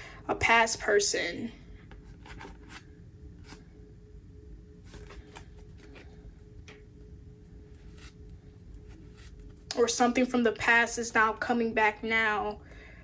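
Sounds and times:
cards slapping and rustling: 0:01.9 - 0:03.6, 0:04.8 - 0:06.8, 0:07.8 - 0:08.2.

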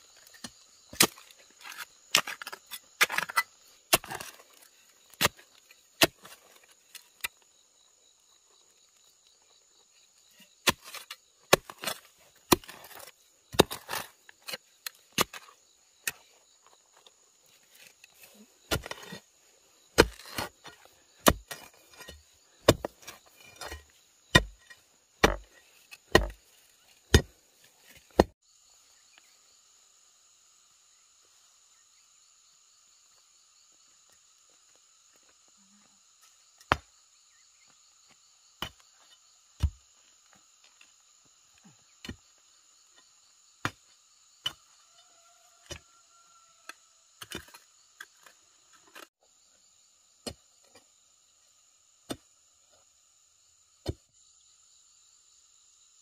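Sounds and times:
insects buzzing: 0:00.0 - 0:56.0
digging tool striking stony soil: 0:00.3 - 0:07.4, 0:10.6 - 0:16.2, 0:17.8 - 0:19.3, 0:19.9 - 0:26.4, 0:27.1 - 0:28.4, 0:36.6 - 0:36.9, 0:39.6 - 0:39.8, 0:43.6 - 0:43.8.

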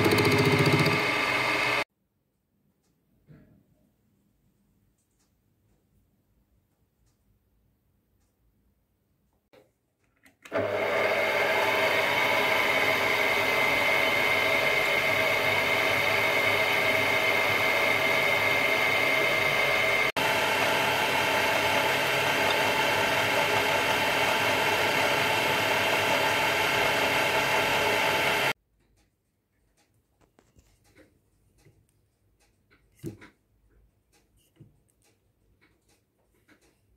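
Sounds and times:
milling machine whining: 0:00.0 - 0:01.8, 0:10.5 - 0:28.6.

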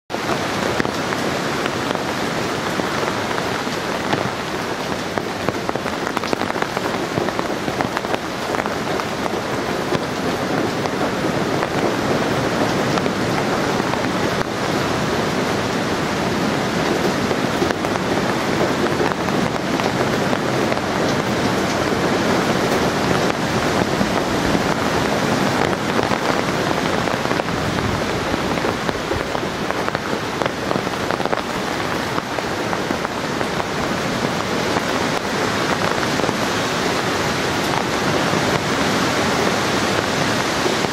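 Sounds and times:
rain falling: 0:00.1 - 0:40.9
wind blowing through trees: 0:00.1 - 0:40.9.

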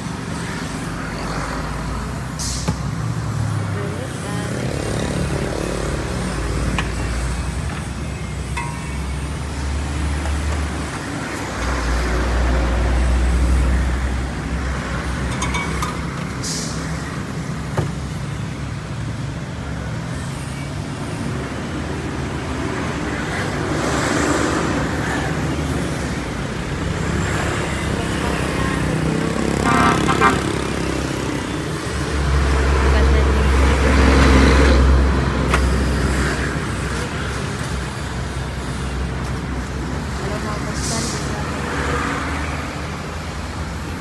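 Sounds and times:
motorcycle and car engines passing: 0:02.8 - 0:08.3, 0:23.0 - 0:37.5.

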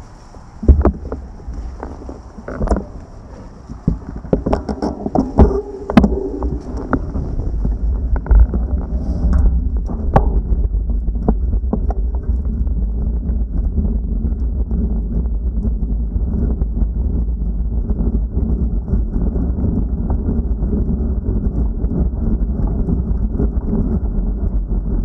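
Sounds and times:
low wind rumble on microphone: 0:00.0 - 0:25.0.

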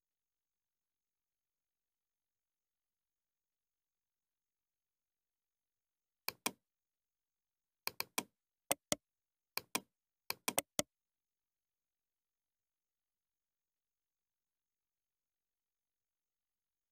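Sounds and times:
computer mouse clicks: 0:06.3 - 0:06.6, 0:07.9 - 0:09.0, 0:09.6 - 0:10.8
keyboard key presses: 0:06.3 - 0:06.6, 0:07.9 - 0:09.0, 0:09.6 - 0:10.8.

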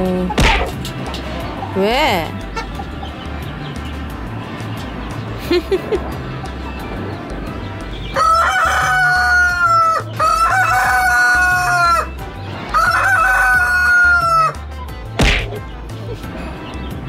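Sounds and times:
rooster crowing: 0:08.1 - 0:14.6.

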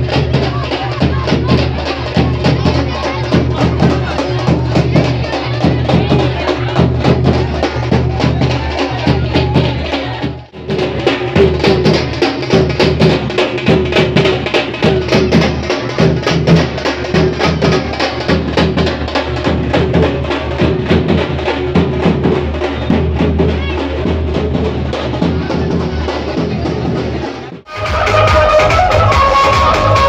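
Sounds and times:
fast loud drumming: 0:00.0 - 0:30.0.

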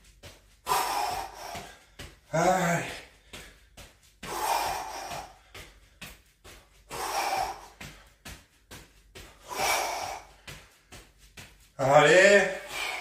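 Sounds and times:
man exhaling forcefully: 0:00.7 - 0:01.8, 0:04.2 - 0:05.4, 0:06.9 - 0:08.0, 0:09.4 - 0:10.4.

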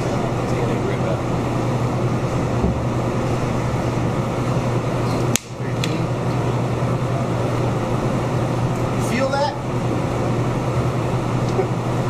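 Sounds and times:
room ventilation hum: 0:00.0 - 0:12.0
sharp click: 0:05.3 - 0:06.0.

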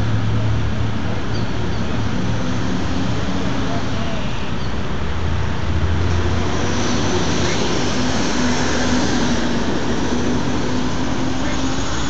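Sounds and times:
passing cars: 0:00.0 - 0:12.0.

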